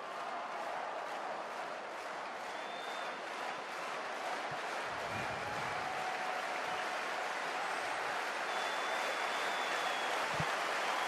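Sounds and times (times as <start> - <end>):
stadium crowd murmur: 0.0 - 11.0.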